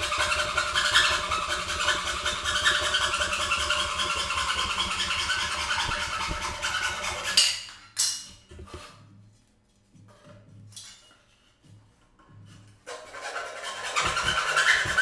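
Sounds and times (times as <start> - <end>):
hacksaw cutting wood: 0.0 - 7.6, 12.8 - 15.0.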